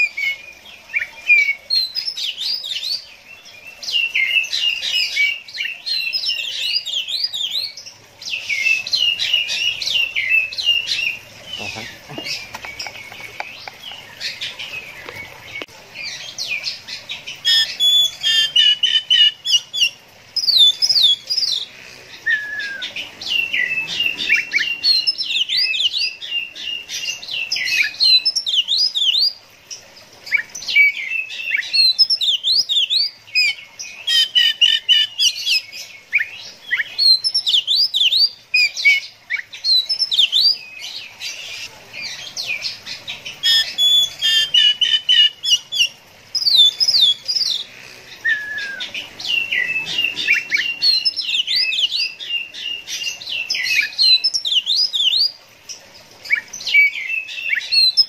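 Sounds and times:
bird singing whistled trills: 22.2s - 29.4s, 43.4s - 47.6s, 48.2s - 55.4s, 56.3s - 58.0s.

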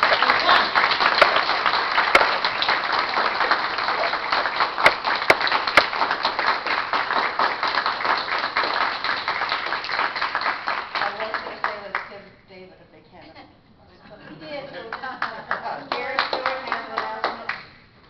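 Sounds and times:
audience applauding: 0.0s - 11.8s
sharp single claps: 0.9s - 6.3s.

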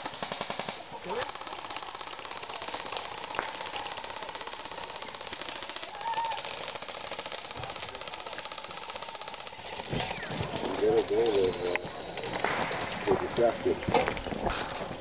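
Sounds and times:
airsoft guns firing full auto: 0.0s - 13.6s
faint shouting voices: 3.6s - 6.6s.

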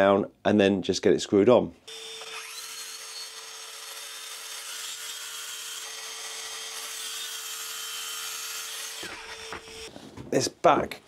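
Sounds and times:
track saw cutting panel: 1.9s - 9.9s.

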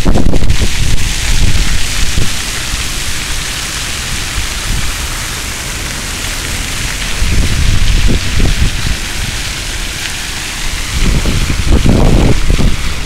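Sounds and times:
wind buffeting microphone: 0.0s - 3.5s, 4.1s - 5.0s, 6.7s - 9.9s, 10.5s - 13.0s
fountain water splashing: 0.0s - 13.0s.

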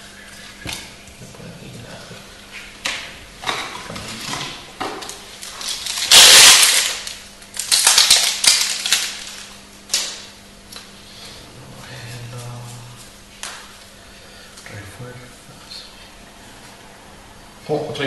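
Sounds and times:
foil wrapper crinkling and tearing: 5.3s - 10.2s.

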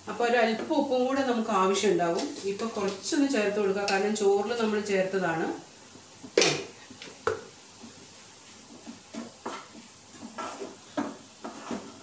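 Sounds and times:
wooden spatula knocking in pan: 8.7s - 12.0s.

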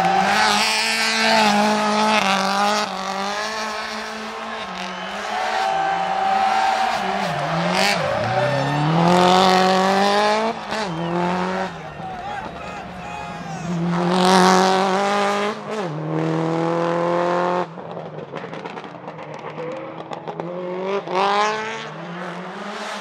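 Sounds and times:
car engine revving hard: 0.0s - 17.7s.

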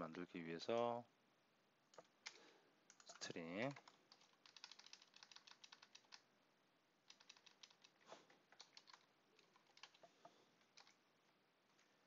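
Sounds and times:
keyboard typing: 1.9s - 6.3s, 7.0s - 11.0s.

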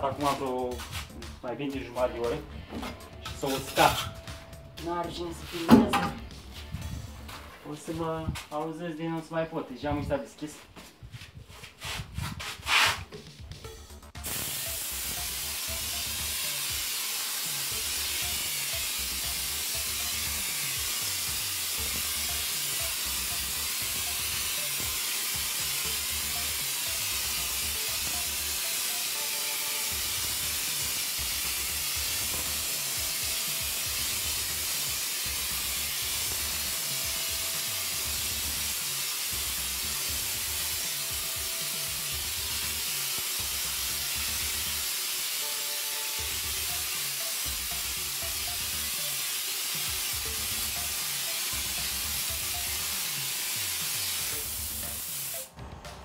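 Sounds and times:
background music with low beat: 0.0s - 56.0s
plaster hopper gun hissing: 11.8s - 13.1s, 14.2s - 55.5s.

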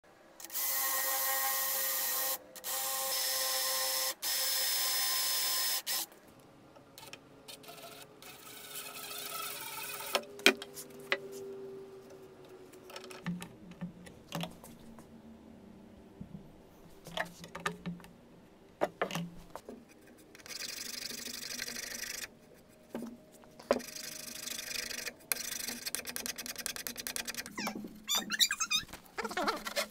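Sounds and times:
cordless drill boring wood: 0.4s - 6.0s, 7.6s - 10.2s
tool clicks and knocks: 17.1s - 18.2s, 18.8s - 19.8s.

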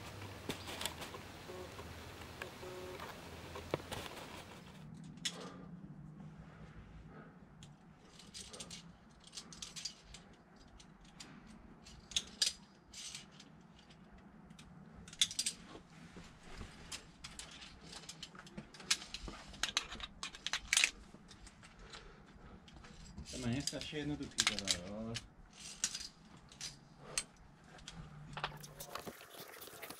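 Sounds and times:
carabiners clinking on metal: 8.0s - 14.0s.

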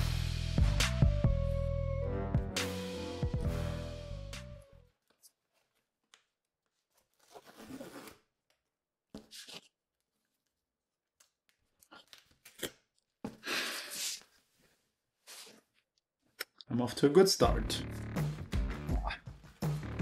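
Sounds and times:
tape tearing off cardboard: 7.0s - 8.3s.

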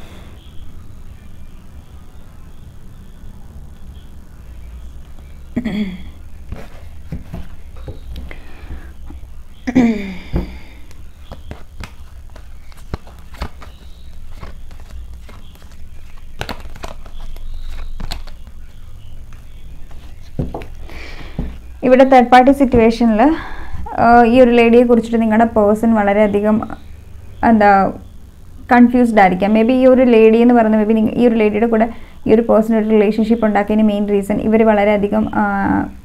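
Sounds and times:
cards shuffled and tapped: 6.5s - 8.4s, 10.3s - 21.6s.

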